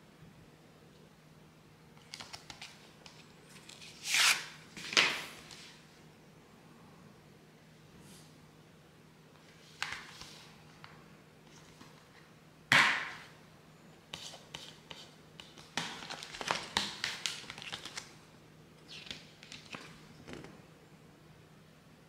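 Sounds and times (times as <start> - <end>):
paper booklet rustling: 14.1 - 18.1.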